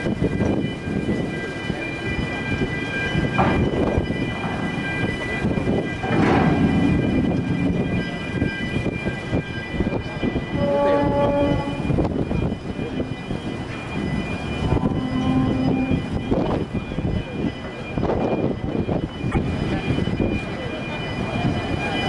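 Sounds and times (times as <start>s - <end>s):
wind buffeting microphone: 0.0s - 22.0s
machinery rumble: 3.3s - 18.0s.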